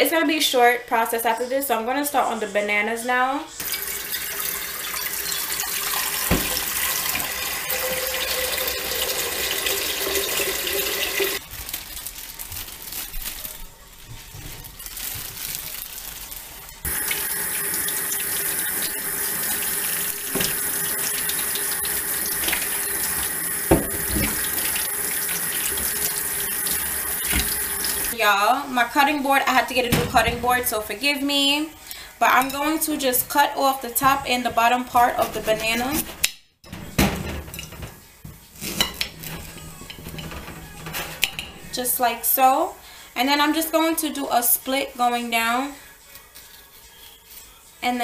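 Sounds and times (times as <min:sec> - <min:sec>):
faucet running into steel sink: 0:03.6 - 0:11.4, 0:16.9 - 0:28.2
pot filling with water: 0:03.6 - 0:11.4, 0:16.8 - 0:28.2
light knocks against sink: 0:23.7 - 0:24.4.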